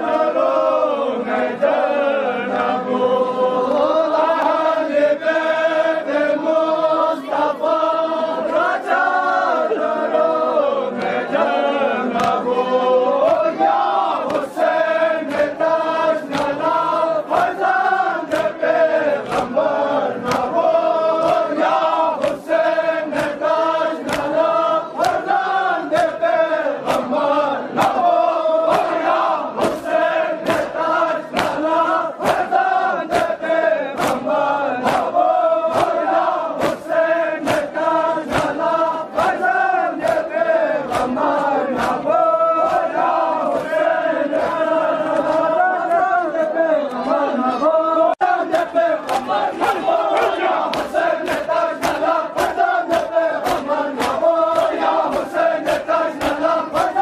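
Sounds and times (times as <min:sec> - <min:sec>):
men chanting a lament: 0:00.0 - 0:57.0
hands slapping chests: 0:12.1 - 0:12.6, 0:13.2 - 0:46.1, 0:48.4 - 0:57.0.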